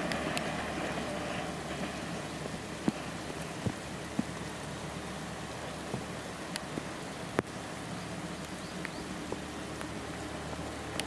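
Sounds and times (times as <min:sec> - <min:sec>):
raindrops striking close by: 0:00.0 - 0:11.0
steady rainfall: 0:00.0 - 0:11.0.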